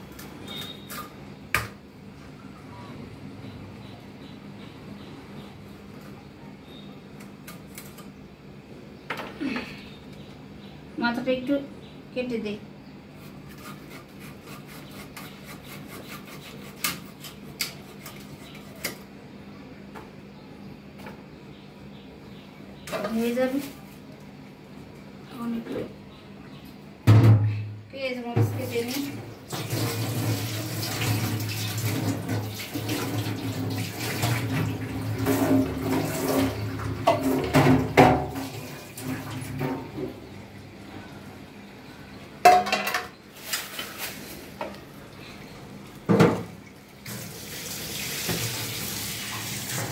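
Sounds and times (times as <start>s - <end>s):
water splashing into metal sink: 28.4s - 40.0s, 46.1s - 49.9s.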